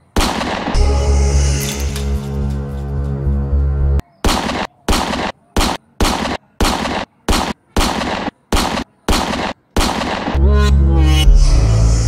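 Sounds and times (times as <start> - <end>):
toy revolver gunshots: 0.0 - 0.8, 4.2 - 10.4.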